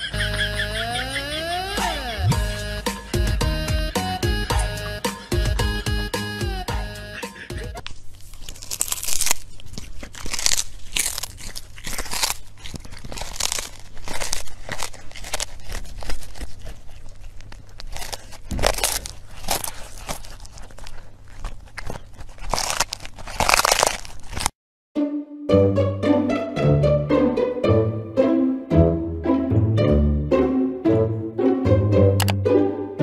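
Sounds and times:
kitten crunching raw fish: 7.2 - 24.6.

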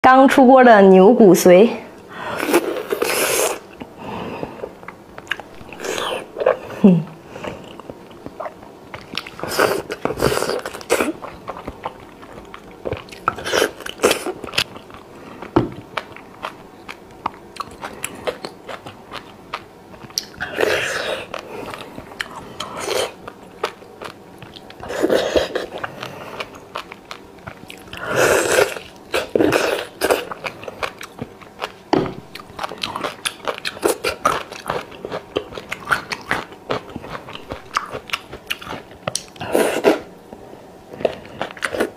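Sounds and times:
wet chewing and biting: 7.6 - 40.1.

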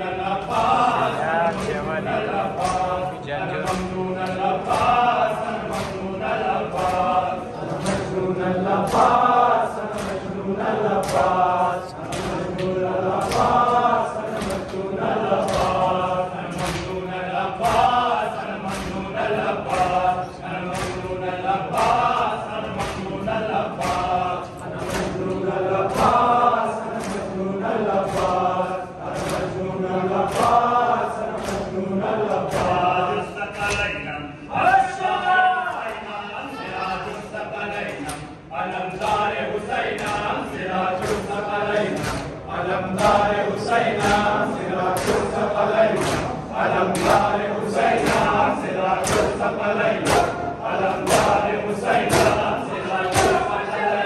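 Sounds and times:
men chanting in unison: 0.0 - 54.0
hands slapping chests: 0.4 - 17.0, 17.6 - 33.9, 37.9 - 38.4, 41.0 - 48.4, 49.0 - 50.4, 51.0 - 53.5
hands slapping bare chests: 2.6 - 3.0.

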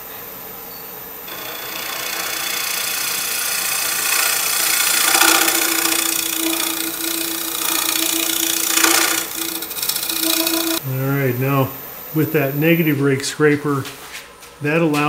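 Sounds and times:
steady hum: 1.2 - 13.4
scraper cutting wood on lathe: 1.3 - 10.8.

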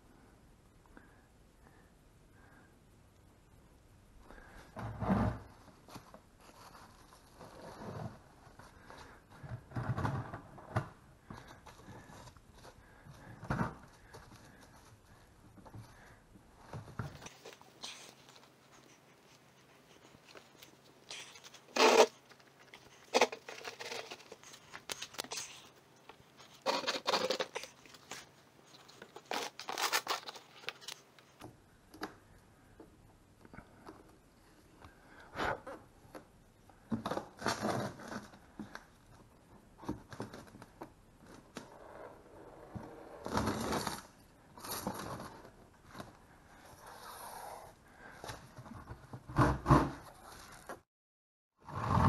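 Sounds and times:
bubble wrap crinkling: 20.0 - 31.4.

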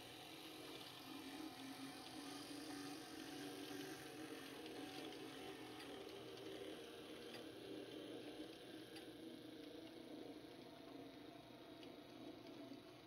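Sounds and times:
model train motor humming: 0.0 - 10.3.

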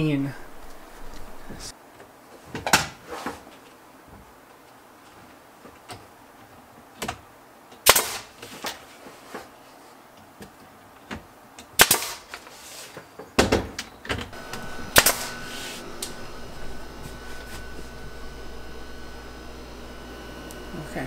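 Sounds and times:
nail gun shots: 7.8 - 8.4, 11.8 - 12.3, 14.9 - 15.3.

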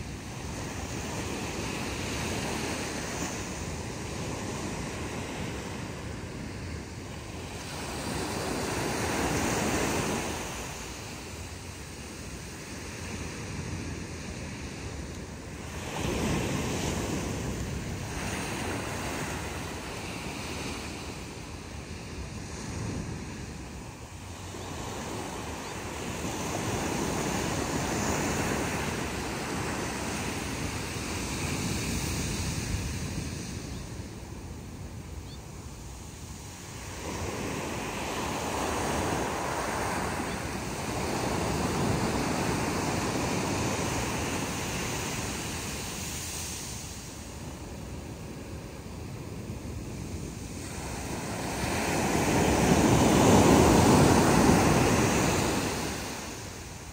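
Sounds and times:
small waves breaking on beach: 0.0 - 56.9.

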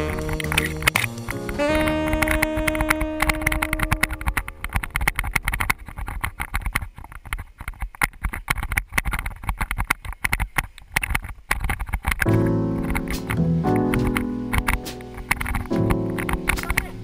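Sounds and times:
background music note: 0.0 - 5.1, 12.3 - 17.0
bike rattling over bumps: 0.0 - 17.0.

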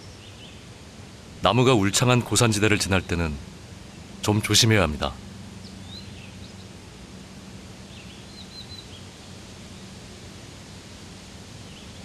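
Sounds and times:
background hiss: 0.0 - 12.0
faint low hum: 0.0 - 12.0
bird chirps: 5.6 - 6.7, 7.9 - 9.1.

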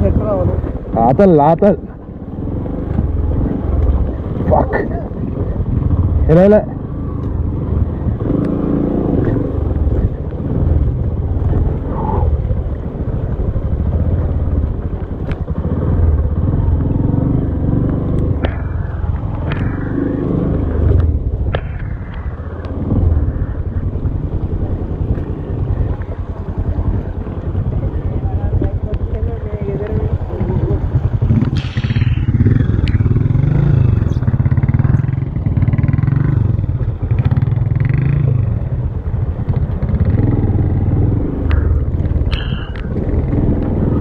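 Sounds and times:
motorcycle engine running: 0.0 - 44.0
sharp knocks and clatters: 17.9 - 20.2.

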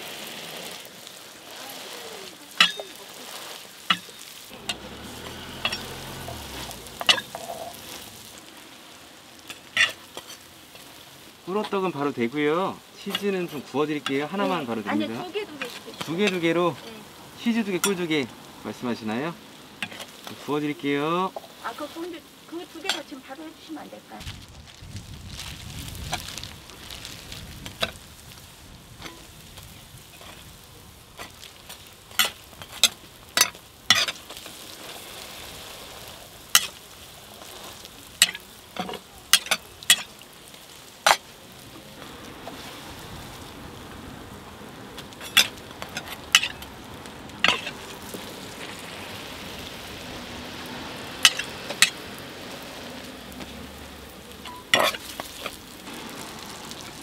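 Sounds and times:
pancakes sizzling on griddle: 0.0 - 57.0
metal tools clacking on griddle: 2.6 - 3.0.

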